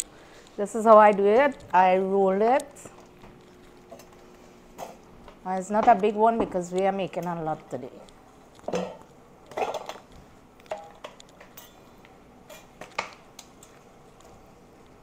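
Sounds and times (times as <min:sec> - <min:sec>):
utensils and dishes clinking: 0:08.7 - 0:10.1, 0:10.7 - 0:11.9, 0:12.5 - 0:13.2.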